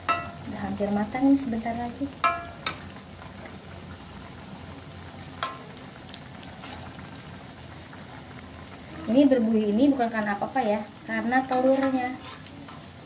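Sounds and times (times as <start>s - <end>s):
metal spatula clinking on wok: 0.0s - 0.4s, 2.2s - 2.8s
food sizzling in oil: 0.0s - 13.0s.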